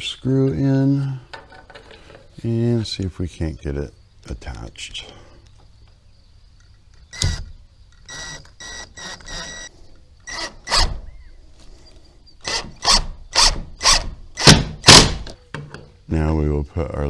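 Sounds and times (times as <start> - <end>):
cordless drill driving a screw: 8.1 - 11.0, 12.4 - 14.6.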